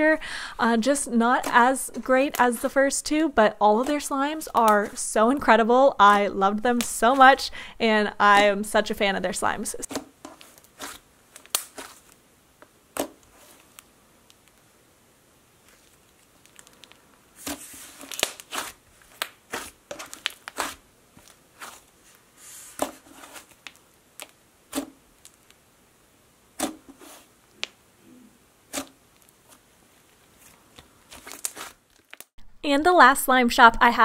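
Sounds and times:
slime squishing and popping: 0:10.4 - 0:12.1, 0:15.7 - 0:21.4.

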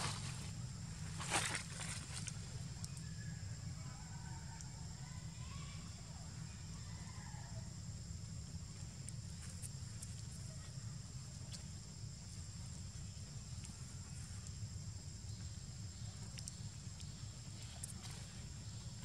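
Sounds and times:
dry leaves rustling: 0:00.0 - 0:02.4
insect drone: 0:00.0 - 0:19.0.

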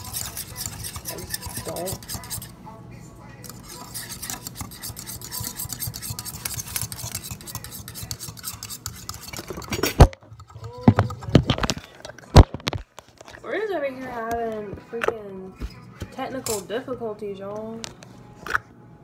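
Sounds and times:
utensil beating eggs in metal bowl: 0:00.0 - 0:02.6, 0:03.4 - 0:11.5.

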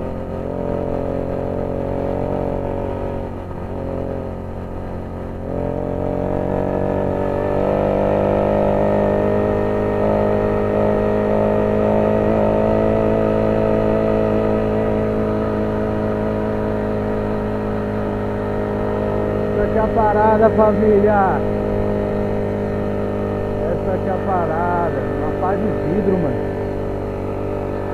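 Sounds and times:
small engine running: 0:18.8 - 0:27.9.

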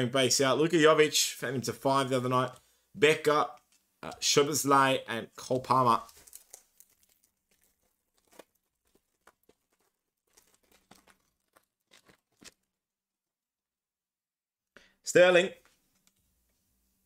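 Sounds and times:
wrapper crinkling and tearing: 0:05.8 - 0:12.8.

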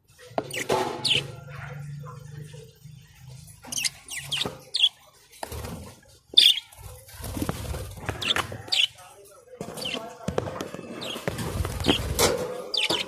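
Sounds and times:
budgerigars chirping: 0:00.4 - 0:06.8, 0:08.1 - 0:09.1, 0:09.8 - 0:10.1, 0:11.0 - 0:13.0.

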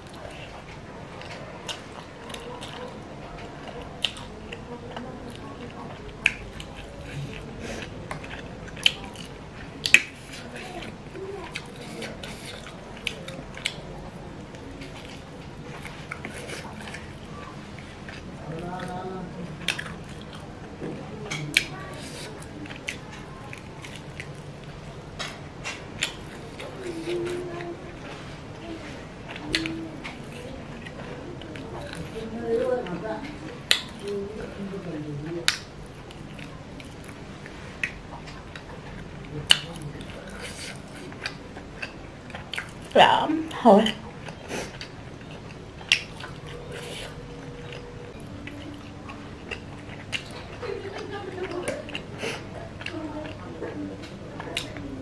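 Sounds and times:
person chewing food: 0:00.0 - 0:55.0
mouth clicks and lip smacks: 0:44.2 - 0:50.7.

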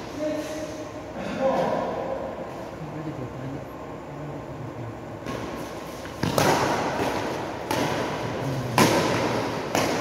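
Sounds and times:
rackets hitting shuttlecock: 0:05.2 - 0:10.0.

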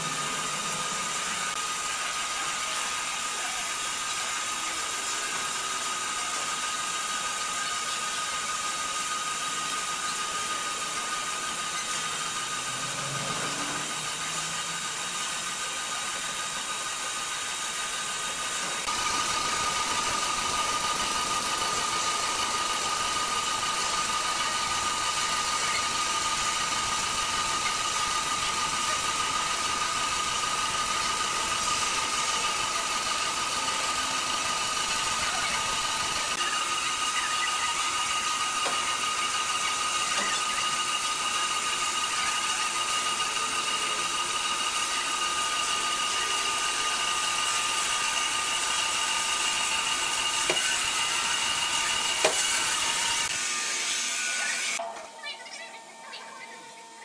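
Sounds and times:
band saw blade whine: 0:00.0 - 0:54.9
higher whine: 0:10.1 - 0:15.4.

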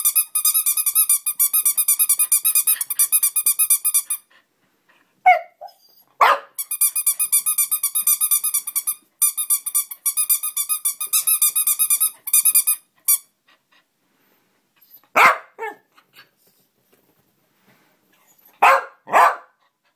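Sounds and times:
dog barking: 0:05.3 - 0:06.6, 0:15.1 - 0:15.8, 0:18.6 - 0:19.6.

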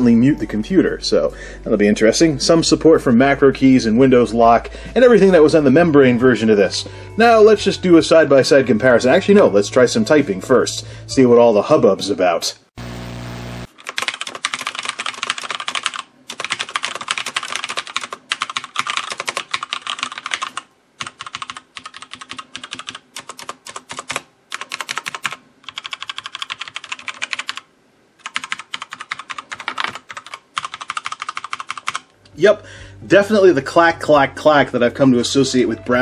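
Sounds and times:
static hiss: 0:12.7 - 0:13.7
fast mechanical keyboard typing: 0:13.7 - 0:32.1.

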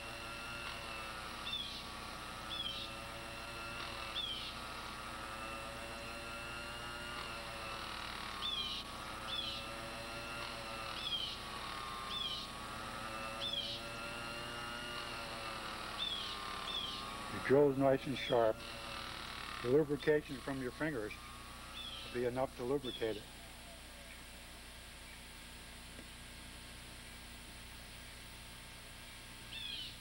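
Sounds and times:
drill squeaking: 0:00.0 - 0:23.6
small lathe whining: 0:00.0 - 0:30.0.

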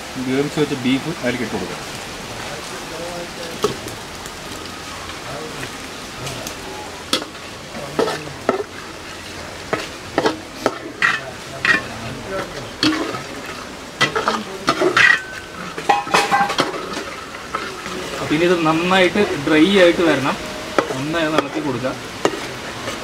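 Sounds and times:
food sizzling: 0:00.0 - 0:23.0
metal ladle scraping a pot: 0:08.0 - 0:12.0, 0:12.8 - 0:17.9.

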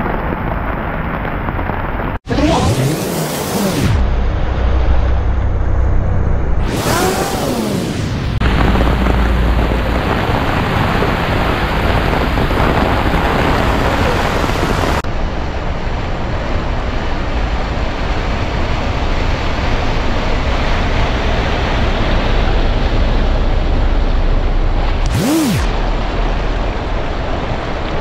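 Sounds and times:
heavy rain pouring: 0:00.0 - 0:28.0
wind rumble on microphone: 0:08.3 - 0:25.1.

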